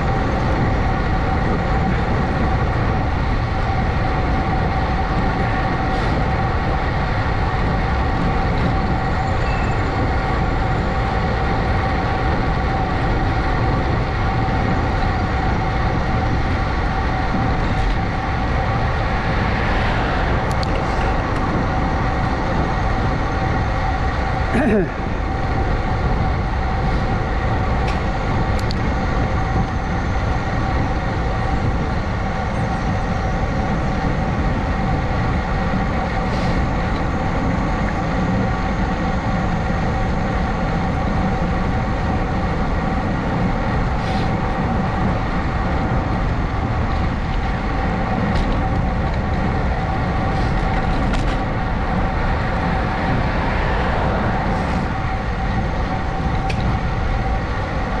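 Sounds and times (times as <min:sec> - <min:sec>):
vehicle whine: 0:00.0 - 0:58.0
wind rush on microphone: 0:00.0 - 0:58.0.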